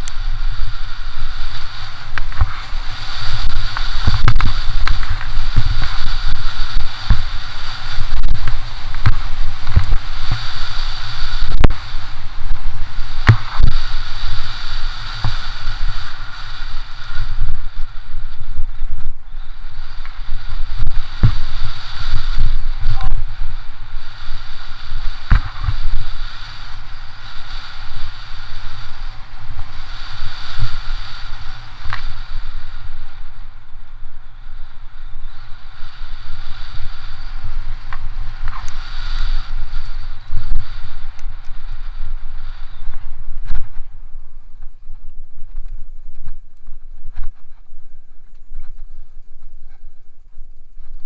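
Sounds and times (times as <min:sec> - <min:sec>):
bike tyre hiss: 0:00.0 - 0:51.0
wind rumble on microphone: 0:00.0 - 0:51.0.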